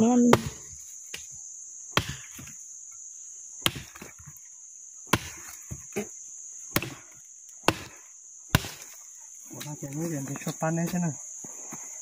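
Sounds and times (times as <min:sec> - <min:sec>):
blade chopping into wood: 0:00.2 - 0:01.3, 0:01.9 - 0:02.6, 0:03.6 - 0:04.3, 0:05.1 - 0:06.1, 0:06.7 - 0:09.0.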